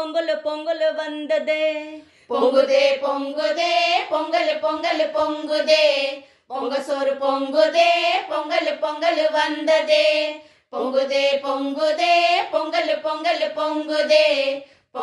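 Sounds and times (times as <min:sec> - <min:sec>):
women singing folk song: 0:00.0 - 0:15.0.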